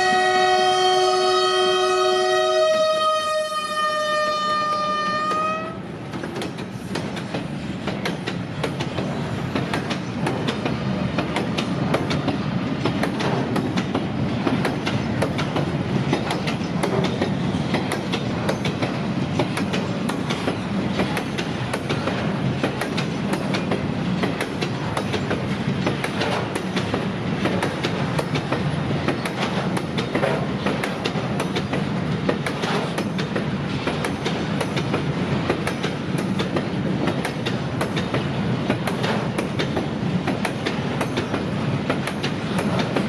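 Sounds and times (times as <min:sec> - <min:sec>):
locomotive horn: 0:00.0 - 0:05.8
train wagons rumbling: 0:00.0 - 0:43.0.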